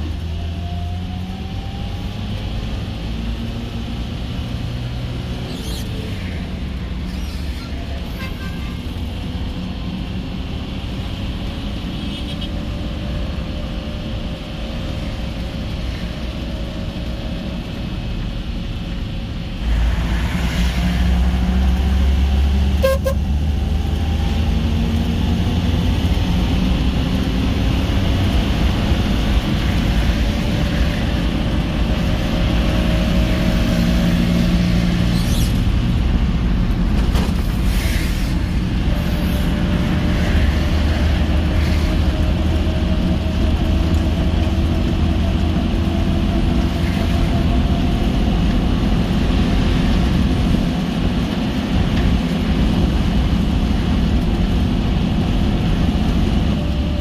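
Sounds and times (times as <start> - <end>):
car engine and tyre rumble: 0.0 - 57.0
car horn toots: 22.8 - 23.2.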